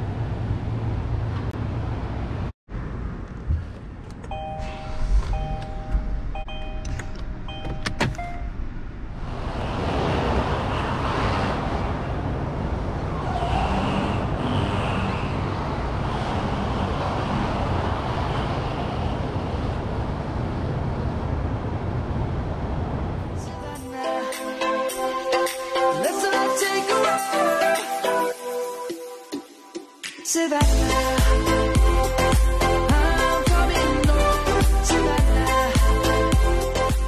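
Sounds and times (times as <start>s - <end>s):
short electronic chimes: 4.3s - 8.5s.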